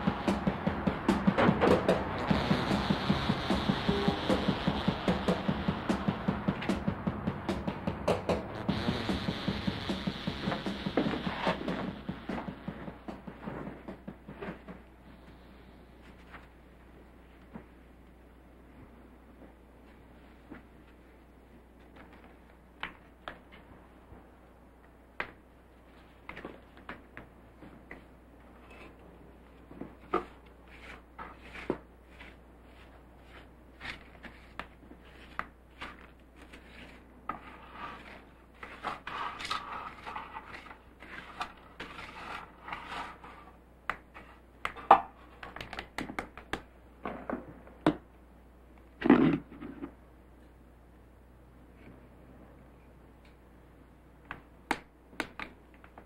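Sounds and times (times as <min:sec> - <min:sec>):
hand brush sweeping floor: 0:30.0 - 0:43.6.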